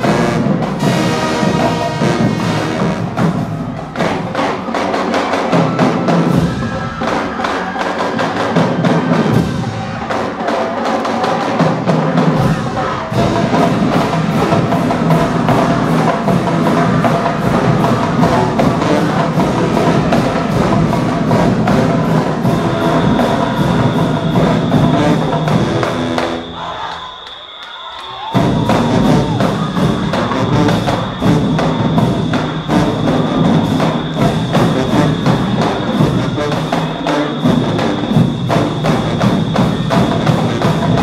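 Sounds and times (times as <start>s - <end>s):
marching band playing: 0.0s - 41.0s
steady high tone: 21.9s - 40.2s.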